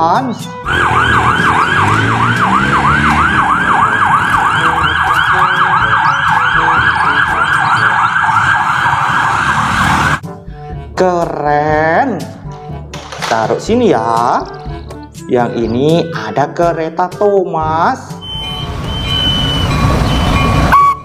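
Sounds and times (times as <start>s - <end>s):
ambulance siren yelping: 0.5s - 10.2s, 18.2s - 21.0s.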